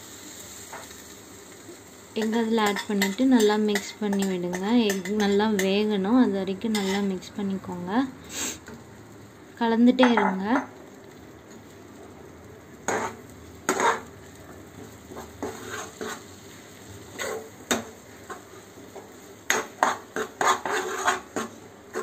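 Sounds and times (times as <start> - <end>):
low sizzle: 0.0 - 22.0
metal spoon scraping a pan: 2.2 - 5.8, 6.7 - 7.2, 12.8 - 14.1, 15.1 - 16.4, 17.1 - 18.5, 19.5 - 22.0.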